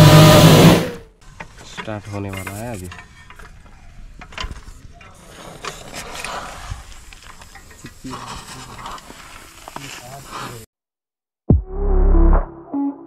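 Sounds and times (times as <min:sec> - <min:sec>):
clicks and knocks of hand tools: 0:01.2 - 0:06.4.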